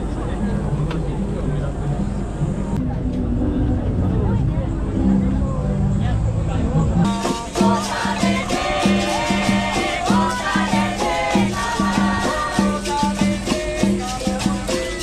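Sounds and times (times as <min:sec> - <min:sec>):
berimbaus playing rhythm: 0:02.8 - 0:15.0
shaker rattle: 0:07.1 - 0:15.0.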